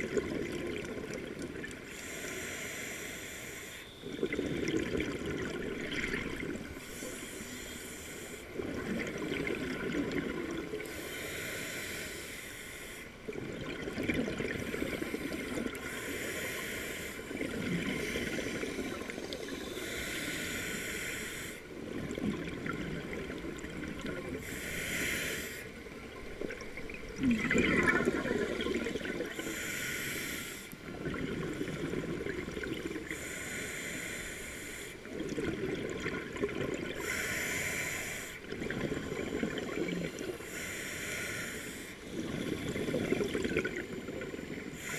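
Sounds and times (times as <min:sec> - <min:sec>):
exhaled bubbles gushing: 0:00.0 - 0:01.8, 0:04.0 - 0:06.8, 0:08.6 - 0:10.8, 0:13.3 - 0:15.8, 0:21.9 - 0:24.4, 0:26.2 - 0:29.3, 0:30.8 - 0:33.1, 0:35.1 - 0:37.0, 0:38.4 - 0:40.3, 0:42.1 - 0:44.6
hissing regulator inhale: 0:01.9 - 0:04.1, 0:06.8 - 0:08.6, 0:10.8 - 0:13.2, 0:14.7 - 0:21.7, 0:24.4 - 0:25.8, 0:29.3 - 0:30.8, 0:33.0 - 0:35.1, 0:37.0 - 0:38.5, 0:39.2 - 0:43.2, 0:44.5 - 0:44.9.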